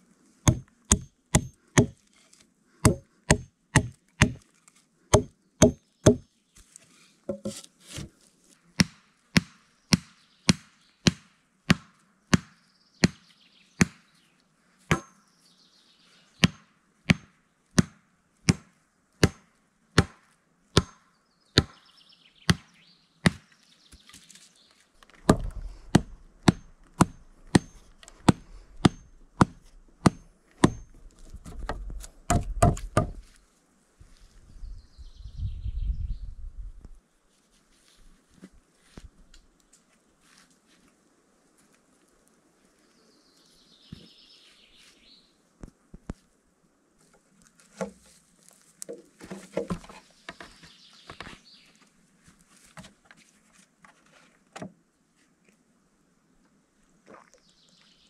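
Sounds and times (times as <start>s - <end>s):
axe chopping wood: 0.5s - 2.0s, 2.8s - 4.4s, 5.1s - 6.3s, 8.8s - 13.2s, 13.8s - 14.0s, 14.9s - 15.1s, 16.4s - 21.8s, 22.5s - 24.1s, 25.1s - 33.4s, 48.8s - 50.0s.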